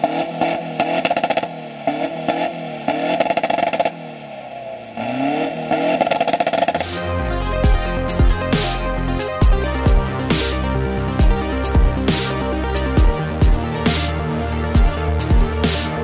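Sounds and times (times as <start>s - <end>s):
diesel engine revving: 0.0s - 16.0s
electronic dance music: 6.7s - 16.0s.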